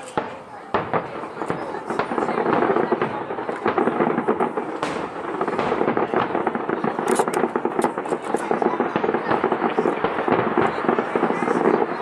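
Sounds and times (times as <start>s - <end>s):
firework shells bursting: 0.0s - 12.0s.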